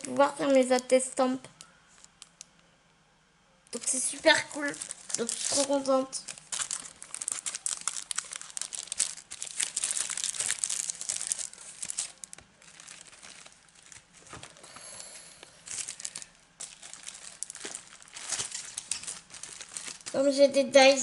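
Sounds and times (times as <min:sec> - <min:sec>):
plastic packaging crinkling: 0:03.8 - 0:14.8, 0:15.4 - 0:20.9.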